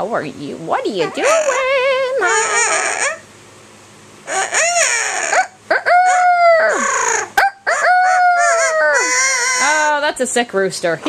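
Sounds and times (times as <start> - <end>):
parrot imitating rooster crowing: 1.0 - 3.3, 4.3 - 10.0.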